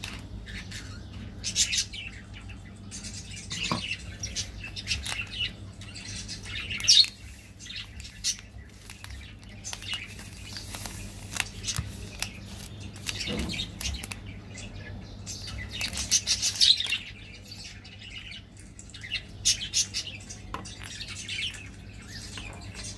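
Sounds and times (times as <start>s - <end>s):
plastic candy wrappers crinkling: 4.4s - 5.5s, 6.2s - 14.7s, 15.4s - 17.2s.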